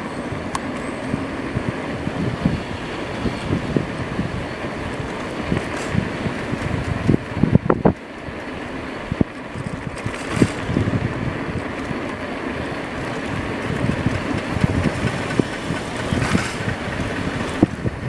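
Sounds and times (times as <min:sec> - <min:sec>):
road and tyre noise: 0:00.0 - 0:18.0
bike rattling over bumps: 0:00.2 - 0:18.0.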